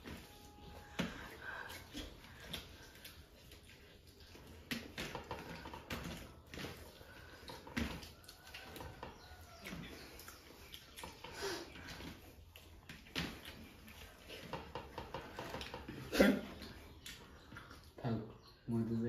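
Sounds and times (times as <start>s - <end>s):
chewing and lip smacks: 5.8s - 14.6s, 15.4s - 18.6s.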